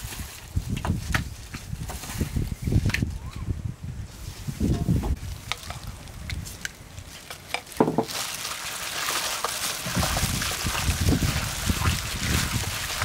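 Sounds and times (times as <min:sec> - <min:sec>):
wet squishing of kneaded meat: 0:05.2 - 0:13.0.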